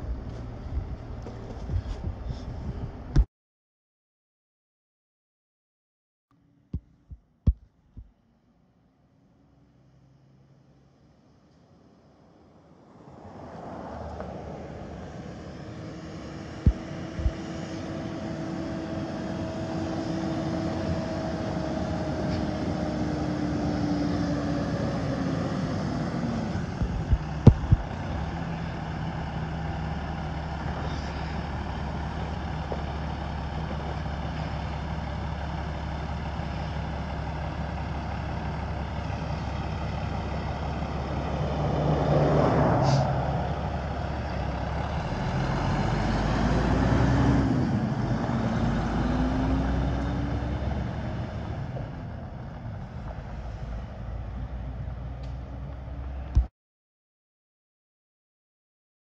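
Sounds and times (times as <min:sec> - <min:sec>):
truck diesel engine running: 0:14.6 - 0:56.4.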